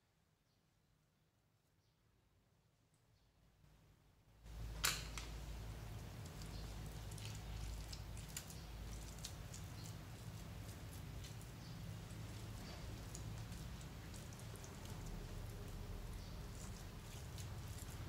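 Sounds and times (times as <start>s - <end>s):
low steady hum: 2.6s - 18.0s.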